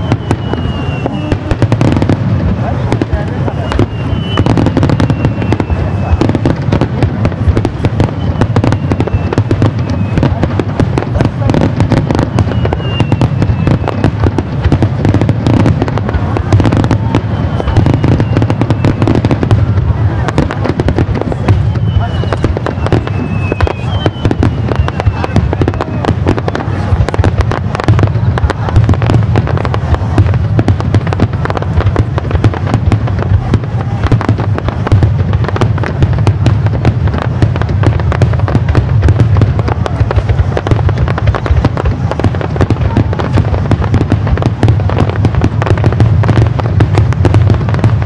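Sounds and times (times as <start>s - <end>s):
falling firework whistle: 0.0s - 2.2s, 3.2s - 6.8s, 7.5s - 10.7s, 11.5s - 30.3s
fireworks crackling and popping: 0.0s - 48.0s.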